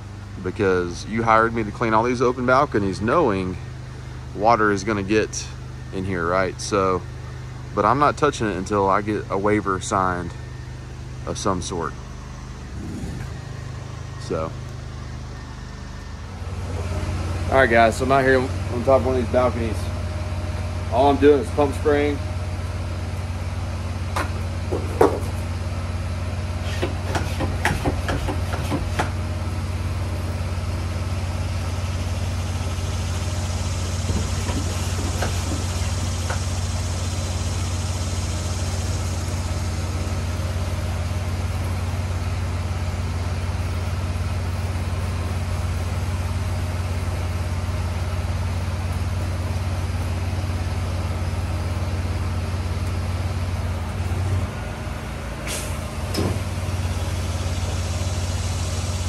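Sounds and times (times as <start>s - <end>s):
pressure washer engine running: 0.0s - 59.0s
sprayer knocks and clicks: 26.7s - 29.2s, 34.0s - 36.5s
sprayer wand hissing: 32.1s - 41.0s, 56.7s - 59.0s.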